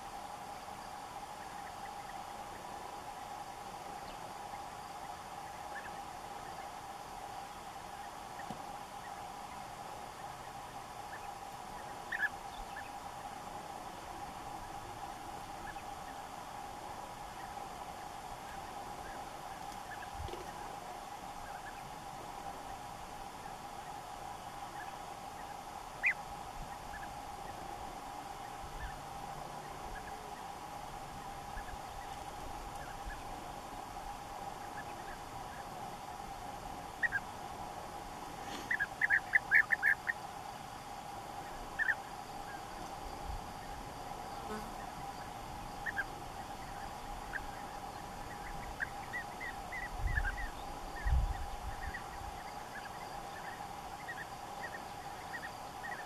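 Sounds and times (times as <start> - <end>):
bee-eaters trilled calls: 10.4 - 13.0, 24.7 - 27.7, 36.9 - 37.3, 38.4 - 40.2, 41.4 - 42.9, 43.5 - 56.0.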